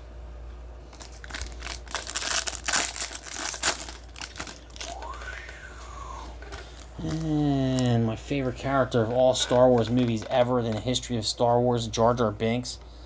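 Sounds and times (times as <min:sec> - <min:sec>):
plastic sleeve crinkling: 0:00.8 - 0:05.6, 0:06.4 - 0:12.1.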